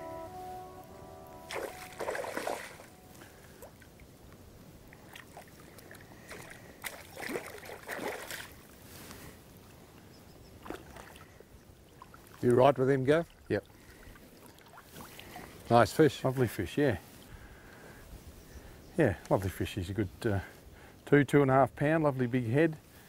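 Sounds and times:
fish splashing in shallow water: 0:01.5 - 0:04.1, 0:04.8 - 0:08.8, 0:10.6 - 0:12.4, 0:13.3 - 0:15.7.

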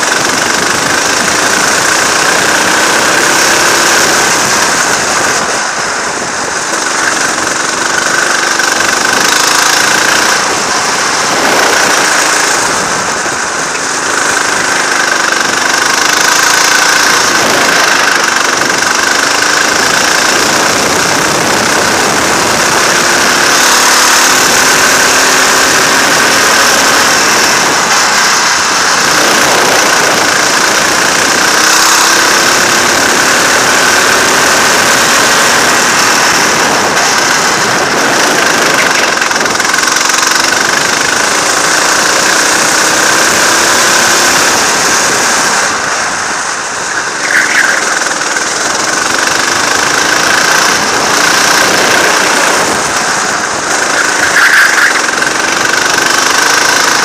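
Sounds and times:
go-kart engine revving: 0:00.0 - 0:57.0.

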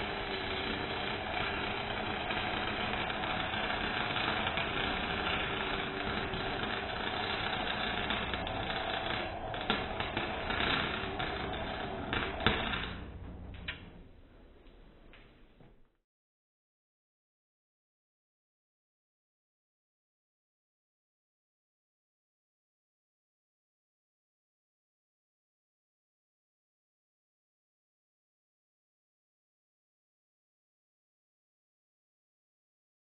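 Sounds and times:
arc welder crackling and buzzing: 0:00.0 - 0:14.2.

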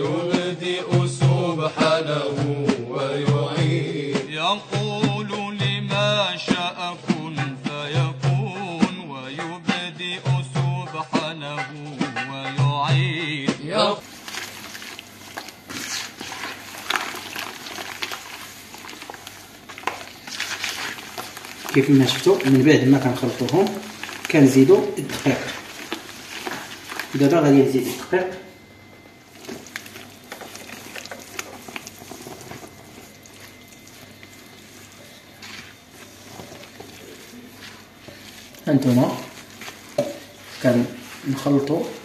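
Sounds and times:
hand swishing liquid in bowl: 0:14.0 - 0:42.0.

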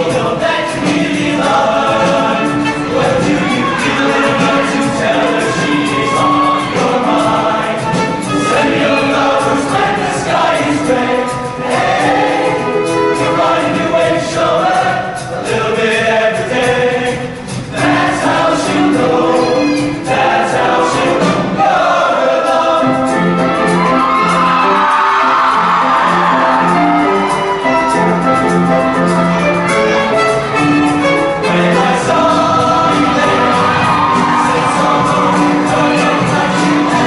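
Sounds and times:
men's choir singing in harmony: 0:00.0 - 0:37.0.

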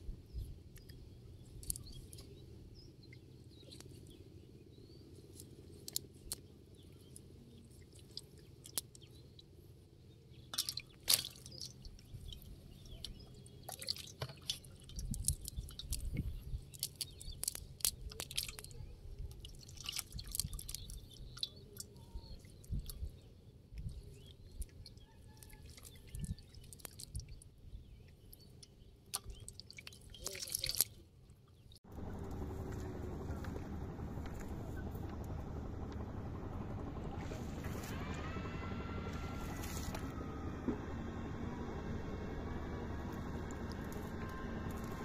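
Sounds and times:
wet fishing net rustling: 0:10.5 - 0:12.5, 0:19.4 - 0:21.5, 0:39.4 - 0:40.1.

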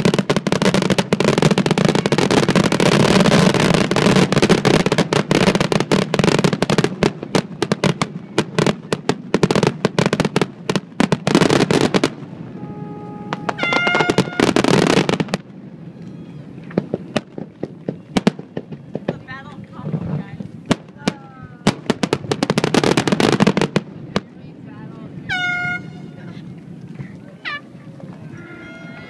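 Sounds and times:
fireworks bangs and crackles: 0:00.0 - 0:12.6, 0:13.2 - 0:29.0
brief pitched tones: 0:12.5 - 0:14.7.

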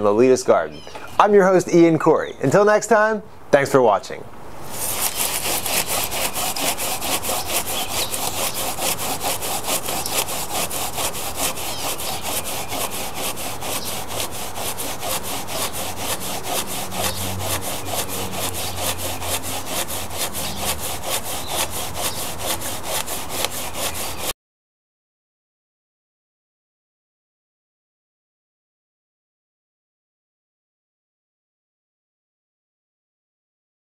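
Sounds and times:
hand saw cutting wood: 0:04.6 - 0:24.4.

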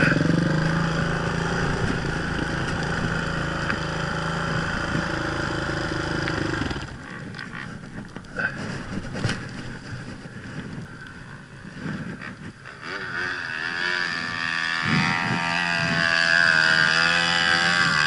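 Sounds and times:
dirt bike engine revving: 0:00.0 - 0:07.7, 0:11.7 - 0:18.0.

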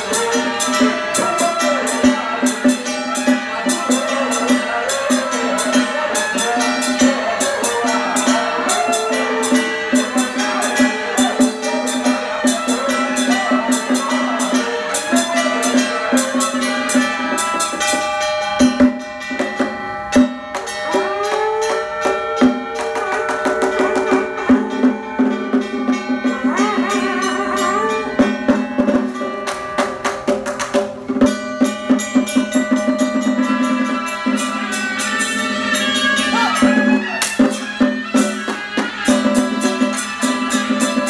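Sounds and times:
drums gongs and cymbals: 0:00.0 - 0:41.0
wavering melody line: 0:03.4 - 0:17.8, 0:20.2 - 0:30.3.

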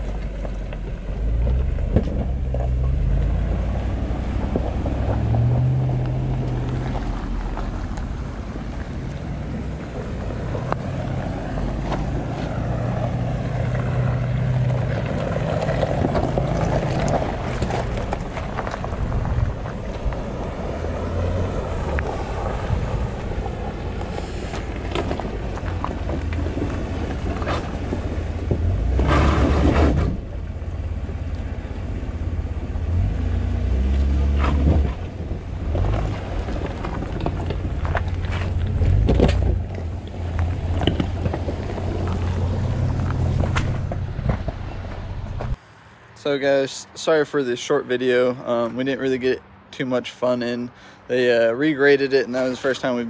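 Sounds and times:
suv engines running low: 0:00.0 - 0:46.4
wind on microphone: 0:15.9 - 0:30.3.

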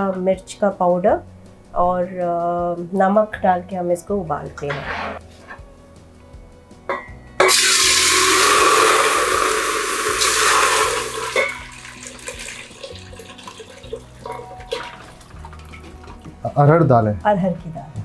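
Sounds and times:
water pouring into a steel pot: 0:07.4 - 0:16.2.

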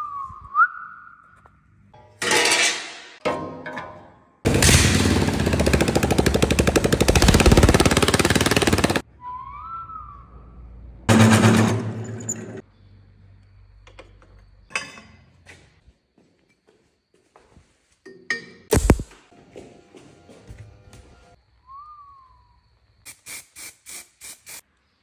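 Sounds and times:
whistle-like tone: 0:00.0 - 0:01.4, 0:09.1 - 0:10.6, 0:21.6 - 0:22.6
lawn mower engine popping: 0:04.5 - 0:09.0.

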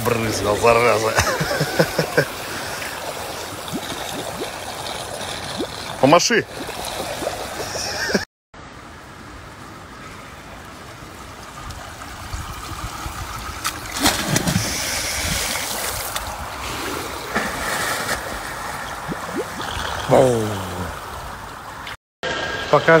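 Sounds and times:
pool water rushing: 0:00.0 - 0:08.2, 0:09.4 - 0:23.0
man jumping into pool splash: 0:13.6 - 0:19.6.

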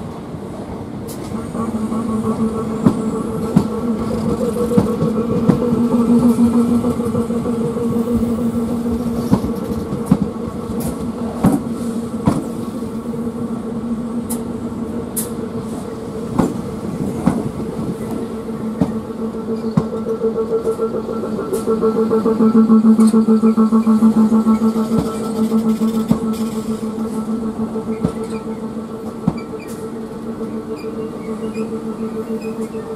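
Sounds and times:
electric train humming: 0:00.0 - 0:32.9
high wheel squeaks: 0:24.4 - 0:32.9.

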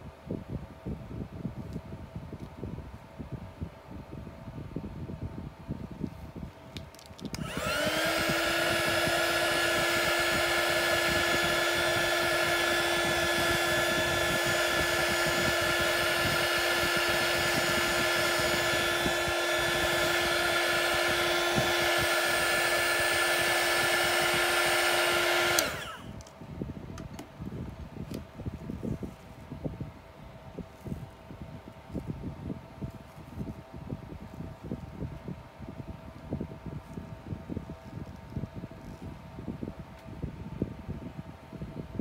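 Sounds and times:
electric blower whining: 0:07.2 - 0:26.3.

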